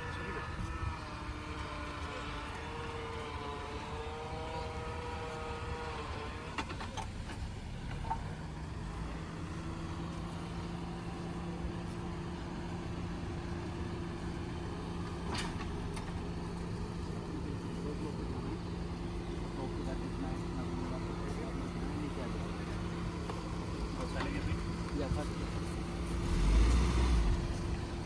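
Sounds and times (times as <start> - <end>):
car engine droning: 0.0 - 28.0.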